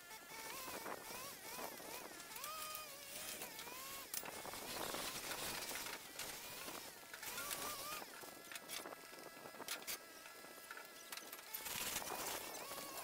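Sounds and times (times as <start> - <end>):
cordless drill whining: 0.0 - 8.1, 11.4 - 13.0
clicks and rasping: 0.1 - 9.0, 11.1 - 13.0.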